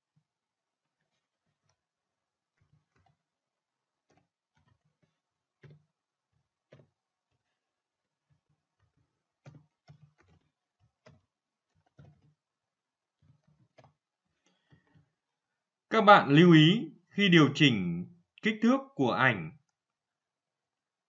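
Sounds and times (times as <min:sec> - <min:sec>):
faint keyboard typing: 0:04.0 - 0:12.5, 0:13.1 - 0:15.4.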